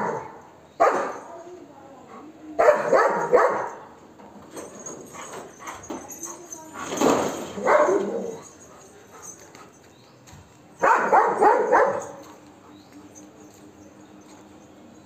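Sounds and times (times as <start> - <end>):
dog barking aggressively: 0.0 - 1.2, 2.6 - 3.8, 7.5 - 8.4, 10.8 - 12.3.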